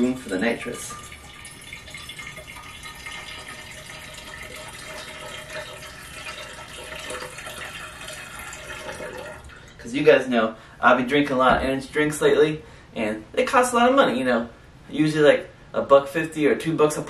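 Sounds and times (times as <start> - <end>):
coffee pouring into keg: 0.0 - 9.8.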